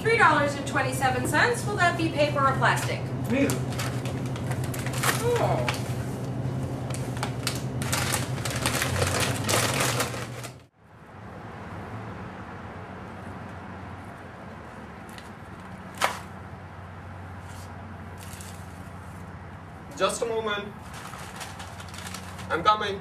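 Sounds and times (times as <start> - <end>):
steady hum: 0.0 - 11.3
goods clattering at checkout: 2.7 - 5.8, 6.9 - 10.7, 20.8 - 22.6.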